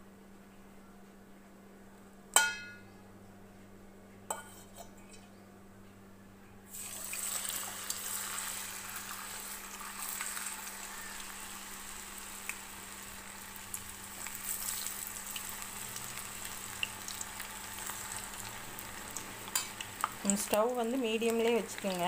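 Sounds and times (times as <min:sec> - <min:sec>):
batter frying in hot oil: 0:06.7 - 0:22.0.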